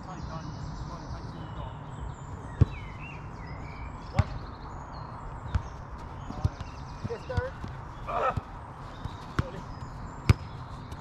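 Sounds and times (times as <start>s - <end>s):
outdoor background noise: 0.0s - 11.0s
football kick thuds: 4.1s - 4.4s, 5.5s - 11.0s.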